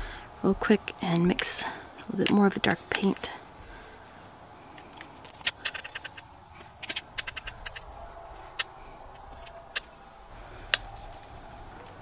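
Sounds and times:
sharp clicks: 0:05.0 - 0:07.9.

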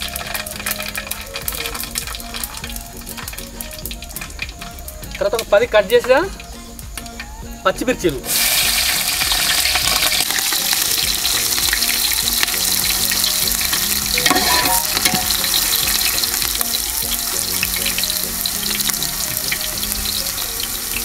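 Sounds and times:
chillies sizzling in hot oil: 0:00.0 - 0:21.0.

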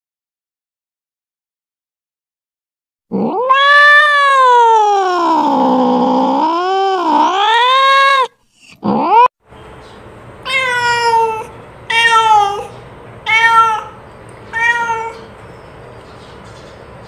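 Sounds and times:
cat meowing: 0:03.1 - 0:09.3, 0:10.4 - 0:15.3.

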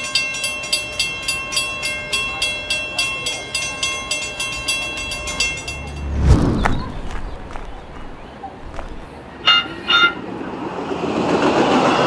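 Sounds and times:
railroad crossing bell ringing: 0:00.0 - 0:06.0.

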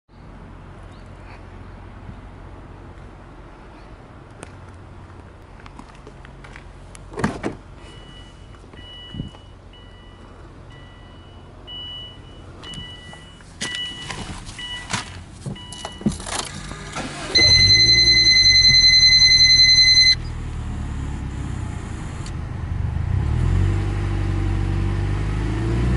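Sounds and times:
car warning chime beeping: 0:07.8 - 0:14.9, 0:15.6 - 0:16.2, 0:16.9 - 0:20.3.

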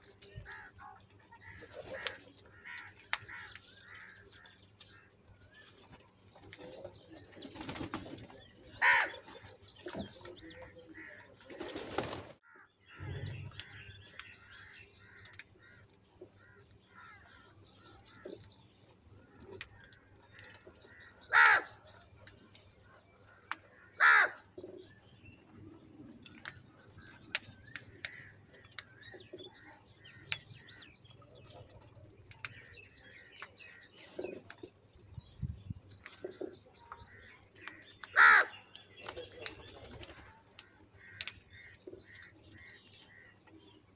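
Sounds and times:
small birds chirping: 0:00.0 - 0:43.9
crows cawing: 0:01.4 - 0:05.1, 0:08.8 - 0:09.4, 0:12.4 - 0:15.8, 0:16.4 - 0:17.6, 0:19.7 - 0:21.9, 0:23.7 - 0:24.5, 0:37.1 - 0:38.6, 0:40.2 - 0:43.3.

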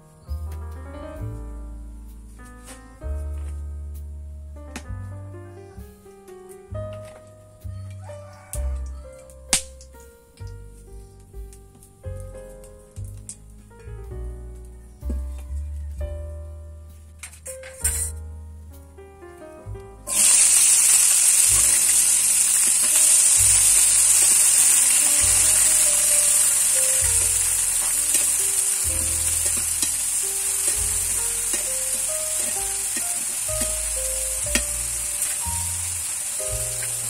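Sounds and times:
vegetables sizzling in hot oil: 0:20.1 - 0:37.0.

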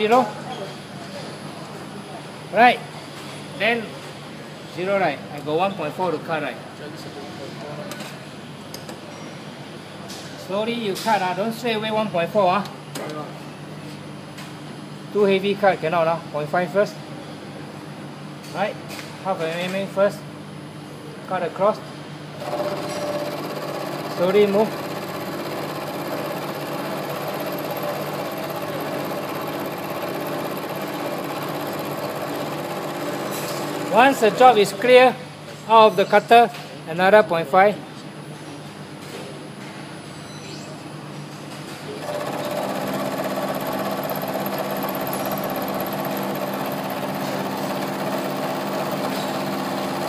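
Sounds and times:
milling machine humming: 0:22.4 - 0:34.9, 0:42.0 - 0:50.0
end mill cutting metal: 0:22.5 - 0:34.6, 0:42.1 - 0:50.0.

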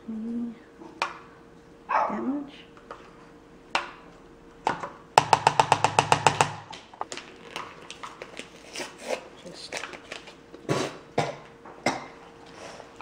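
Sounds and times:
rapid sharp taps: 0:05.2 - 0:06.8
utensils knocking: 0:05.2 - 0:06.8.

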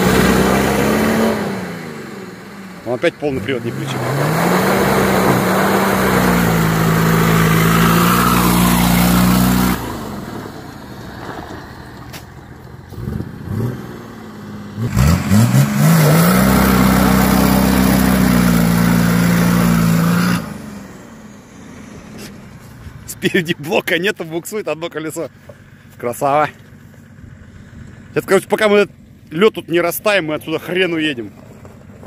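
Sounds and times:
engine revving high: 0:00.0 - 0:10.6, 0:12.9 - 0:22.3.

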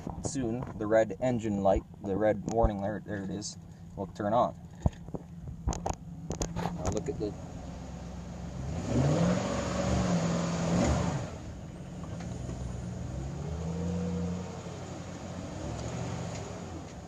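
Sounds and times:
pickup engine revving: 0:03.6 - 0:17.0.

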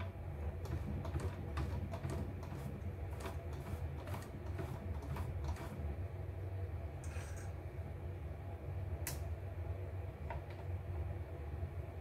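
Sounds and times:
light clicks of small parts: 0:09.0 - 0:09.3.

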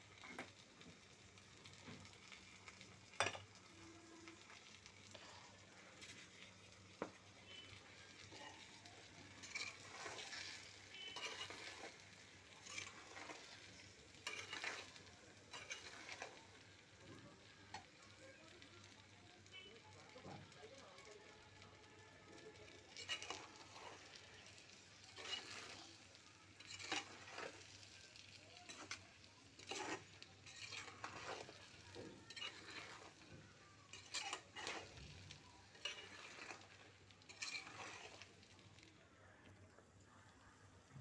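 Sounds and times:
frying in oil sizzle: 0:00.0 - 0:41.0
metal spatula scraping pan: 0:07.5 - 0:16.4, 0:22.9 - 0:28.0, 0:28.6 - 0:38.6.

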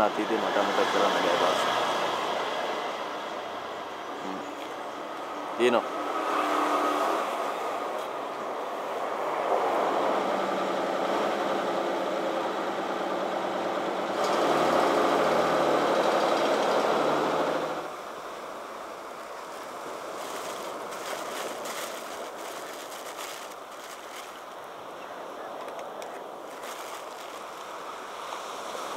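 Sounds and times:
bus diesel engine running: 0:10.0 - 0:17.9.

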